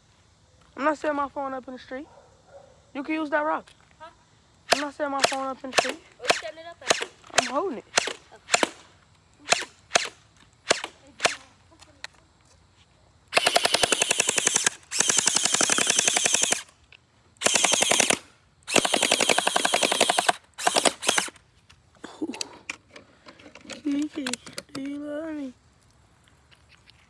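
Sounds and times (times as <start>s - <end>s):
gel blaster single shots: 4.6s - 8.8s, 9.4s - 11.5s, 13.3s - 16.7s, 17.4s - 21.4s
rapid automatic fire: 13.3s - 16.7s, 17.4s - 21.3s.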